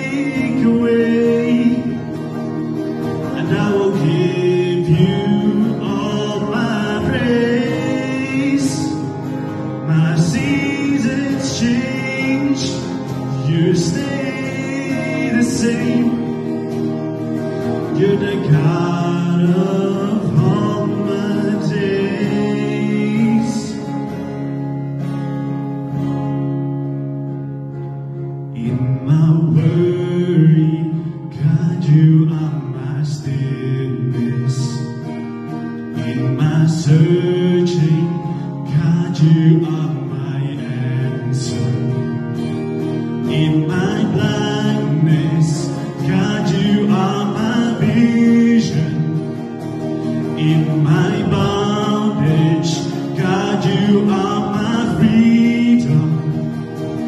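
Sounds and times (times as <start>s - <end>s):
man singing into microphone: 0.0s - 17.1s, 17.7s - 24.2s, 28.6s - 35.1s, 35.9s - 42.2s, 43.1s - 49.4s, 50.1s - 56.8s
amplified guitar: 0.0s - 57.0s.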